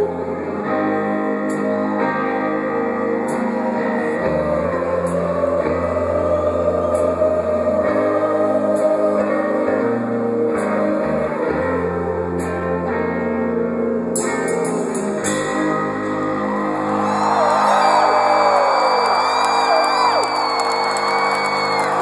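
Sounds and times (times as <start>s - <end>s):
rock band playing: 12.2s - 18.4s
crowd whistling and whooping: 16.0s - 22.0s.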